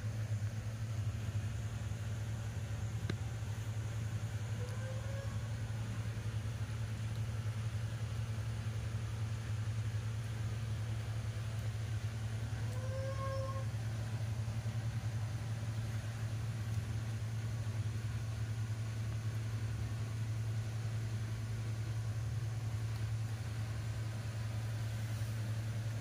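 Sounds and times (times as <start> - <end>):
low machine hum: 0.0 - 26.0
short pitched squeak: 4.6 - 5.5, 12.7 - 13.7.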